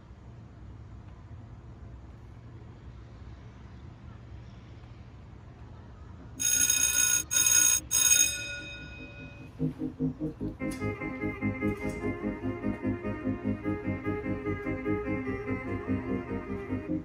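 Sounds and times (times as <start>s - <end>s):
electronic timer alarm ringing: 6.4s - 9.8s
music: 9.2s - 17.0s.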